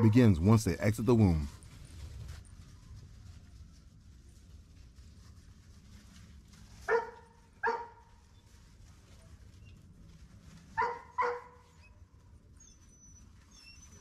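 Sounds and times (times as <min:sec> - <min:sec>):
puppy barking: 0:06.9 - 0:08.0, 0:10.8 - 0:11.6.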